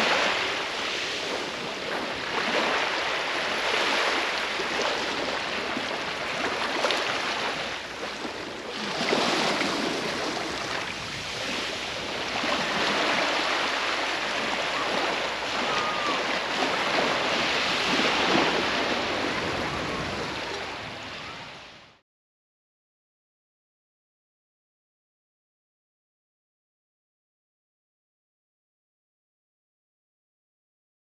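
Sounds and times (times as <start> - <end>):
small waves washing onto beach: 0.0 - 22.0.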